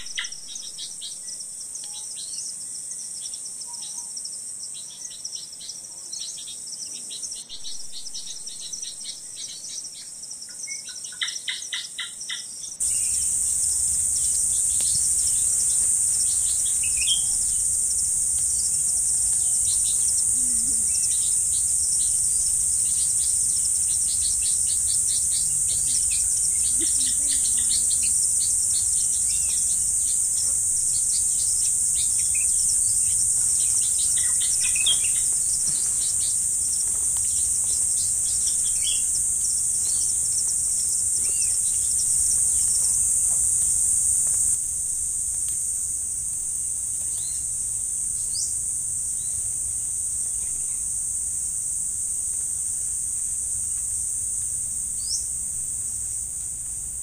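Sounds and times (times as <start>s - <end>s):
bird chirps: 0.0s - 2.5s, 6.2s - 36.4s
insects droning: 0.0s - 57.0s.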